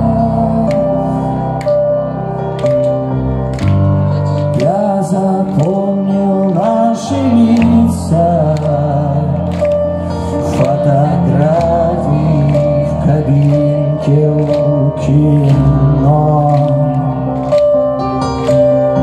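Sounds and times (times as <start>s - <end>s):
man singing long notes: 0.0s - 1.6s, 10.3s - 17.4s.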